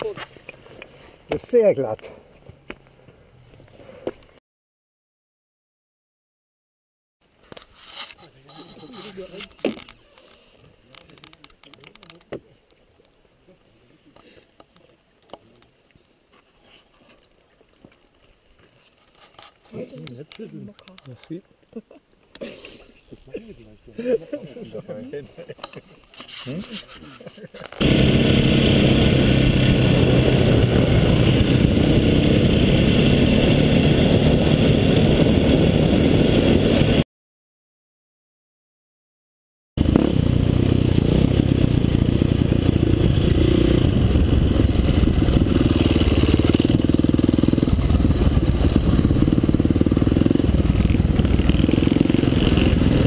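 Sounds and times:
motorcycle engine running: 27.8s - 37.0s, 39.8s - 53.0s
wind rush: 27.8s - 37.0s, 39.8s - 53.0s.

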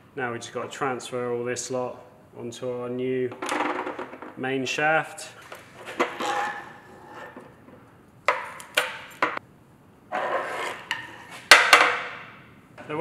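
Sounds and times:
metal scraping: 5.3s - 7.9s, 10.1s - 11.5s.

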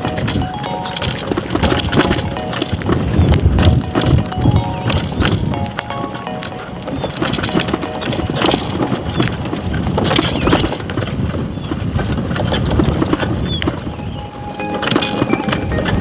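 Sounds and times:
motorcycle knocking and rattling: 7.0s - 13.8s.

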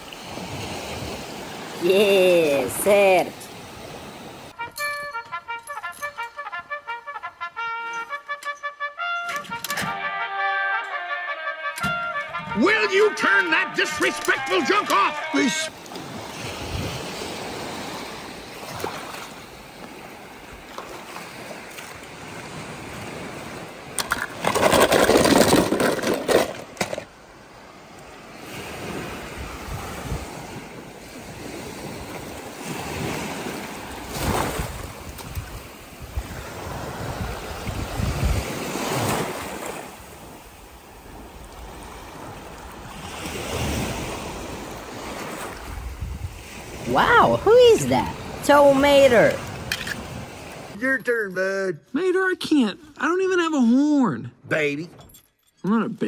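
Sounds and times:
water sloshing and splashing: 13.3s - 50.8s.

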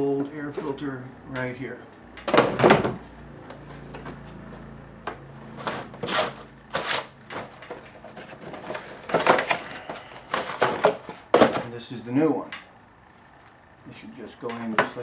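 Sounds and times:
cardboard box scraping and rustling: 5.5s - 11.2s.

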